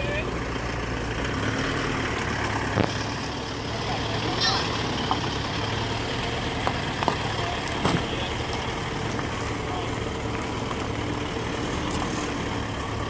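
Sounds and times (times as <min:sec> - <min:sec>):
vehicle engine running at low revs: 0:00.0 - 0:13.0.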